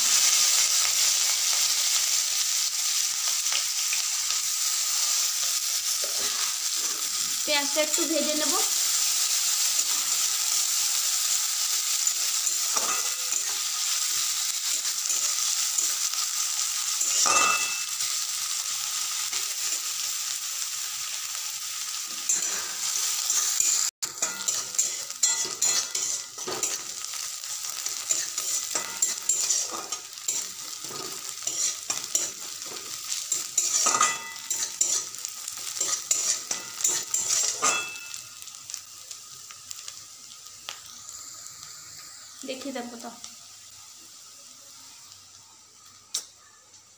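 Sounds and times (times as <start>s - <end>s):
onions sizzling in oil: 0.0s - 46.9s
metal spatula scraping pan: 22.1s - 26.9s, 28.0s - 35.2s, 35.8s - 38.2s.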